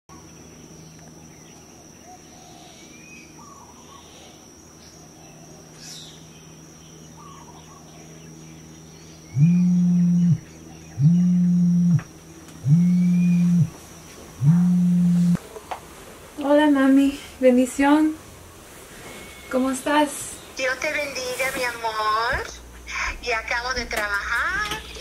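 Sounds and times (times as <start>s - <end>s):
smartphone vibrating on a bed: 9.4s - 13.8s, 14.4s - 15.4s.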